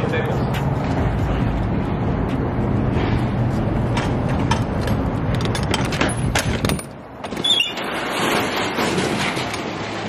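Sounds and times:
metallic clicks and rattles: 4.0 - 7.4.

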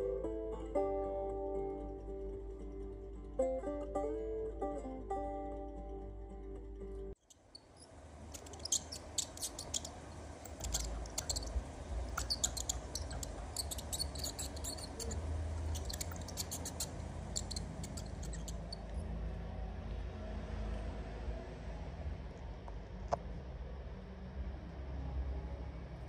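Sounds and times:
mice squeaking: 7.2 - 19.0
low steady rumble: 7.8 - 26.0.

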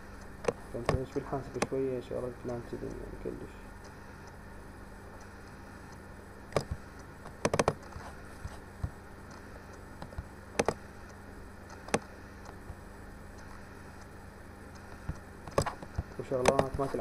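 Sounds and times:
low electrical hum: 0.0 - 17.0
computer mouse clicking: 0.2 - 1.8, 5.2 - 12.6, 14.7 - 17.0.

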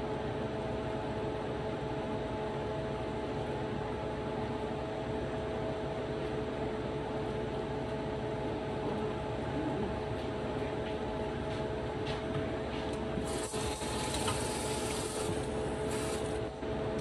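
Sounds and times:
kitchen appliance motor whirring: 13.2 - 16.4.

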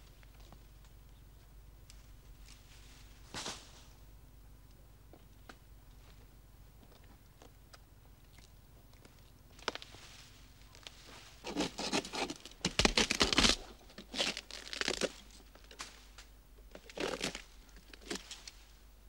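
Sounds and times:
dry palm fronds crackling: 9.0 - 18.8.

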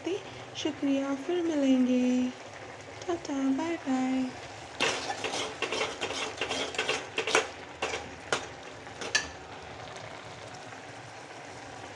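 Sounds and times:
spoon scraping a metal pot: 4.8 - 8.1.

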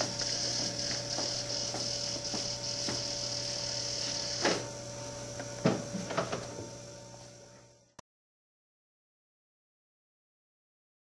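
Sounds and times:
robot motors whirring: 0.0 - 4.7
steady low hum: 0.0 - 8.0.

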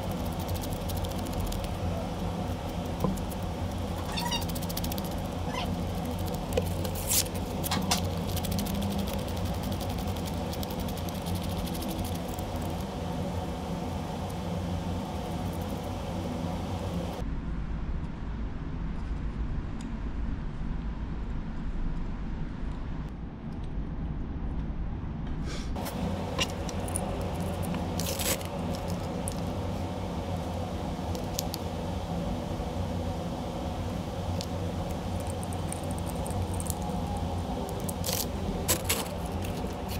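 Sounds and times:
steady low hum: 0.0 - 39.9
sandpaper rubbing on wax: 4.0 - 12.8.

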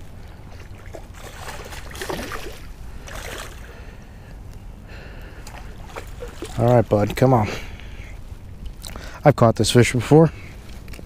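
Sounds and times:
fish splashing at water surface: 0.5 - 3.8, 5.4 - 7.2.

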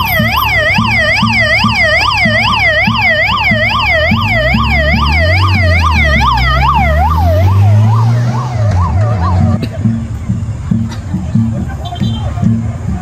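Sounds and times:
police motorcycle siren yelping: 0.0 - 9.6
motorcycle engine rumble: 0.0 - 13.0.

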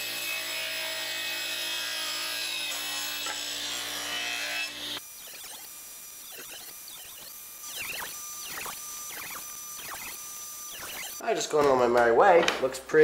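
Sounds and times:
table saw cutting wood: 0.0 - 11.2.

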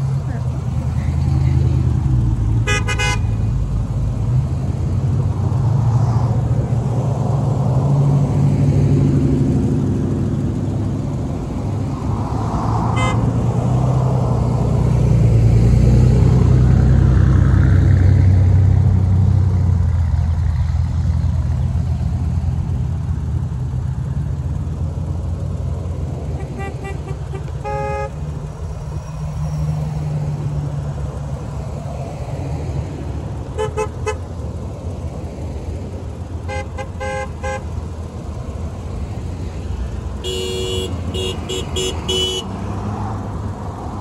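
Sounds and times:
trucks driving past: 0.0 - 44.0
tyres humming on asphalt: 0.0 - 44.0
short horn toot: 26.4 - 28.2, 40.2 - 42.5.

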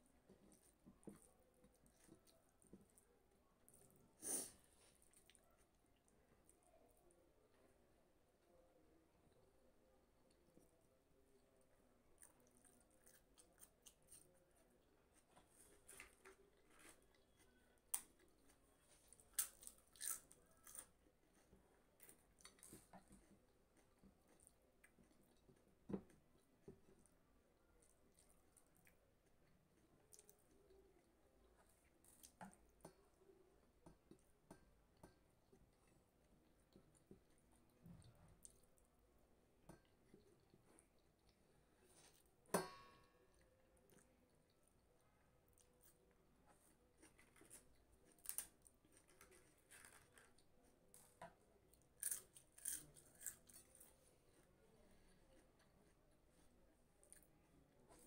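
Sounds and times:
soft chewing and squishing: 0.0 - 58.0
crisp pappad crunching: 12.2 - 26.2, 45.5 - 54.5.

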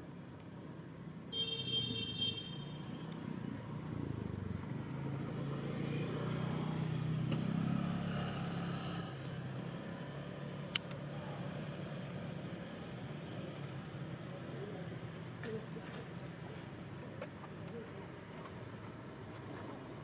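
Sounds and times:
vehicle engine passing: 3.3 - 14.8.

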